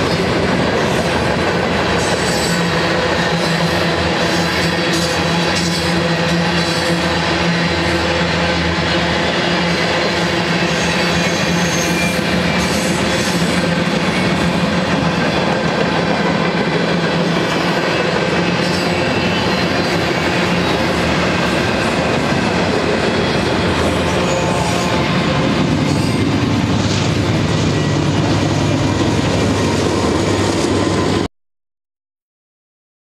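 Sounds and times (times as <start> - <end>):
diesel locomotive engine drone: 0.0 - 31.3
wheel squeal: 10.7 - 14.4.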